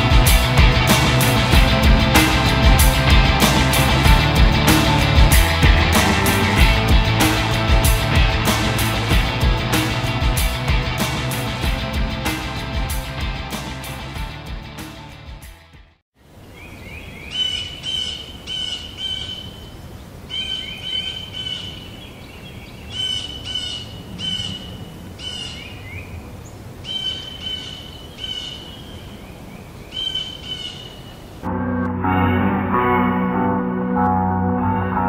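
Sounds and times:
music cue: 0.0s - 15.4s, 31.5s - 35.0s
background hiss: 16.2s - 31.5s
songbird whistling: 26.8s - 29.0s, 29.9s - 30.9s.

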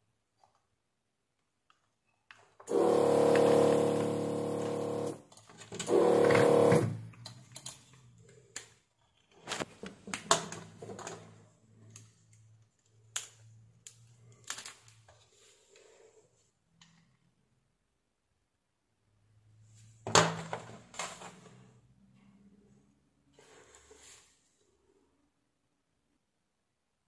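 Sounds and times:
desoldering pump running: 2.7s - 5.2s, 5.8s - 7.1s.

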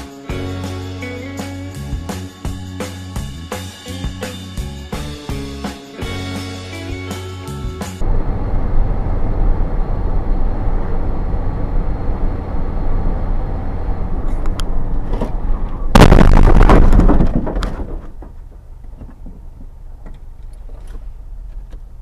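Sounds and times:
vehicle road and engine rumble: 8.0s - 16.1s, 17.4s - 22.0s
car collision crash: 15.9s - 18.4s.

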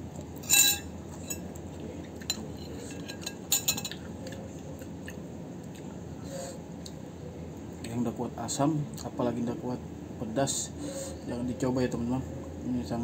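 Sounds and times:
metal utensil clinking on plate: 0.4s - 1.4s, 2.2s - 4.0s.

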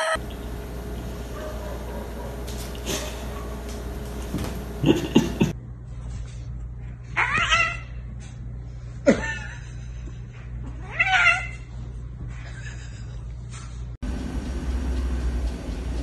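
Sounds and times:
cat yowling: 7.2s - 7.9s, 10.8s - 11.6s.

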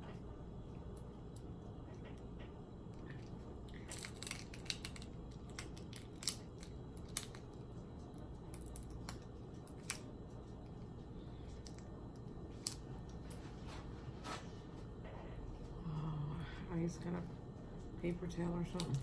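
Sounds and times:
low steady hum: 0.0s - 19.0s
shell cracking and snapping: 2.9s - 10.8s, 11.5s - 13.2s.

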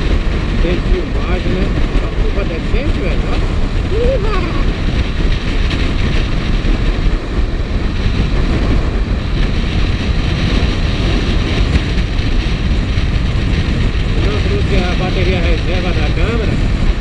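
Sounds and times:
motorcycle engine running: 0.0s - 17.0s
wind rushing over microphone: 0.0s - 17.0s.

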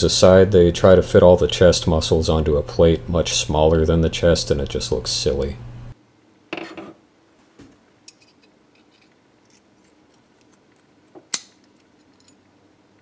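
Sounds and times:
small metal parts clinking: 8.1s - 12.5s.

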